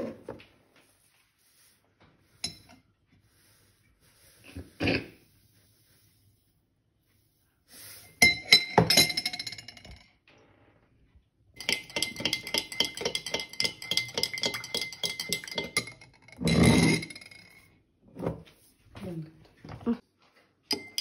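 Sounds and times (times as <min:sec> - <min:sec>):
spoon clinking against glass: 0:08.2 - 0:10.0, 0:11.6 - 0:17.6, 0:20.7 - 0:21.0.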